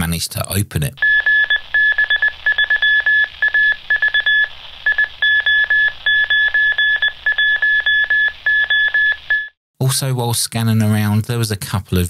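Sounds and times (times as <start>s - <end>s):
morse code beeping: 1.0s - 9.6s.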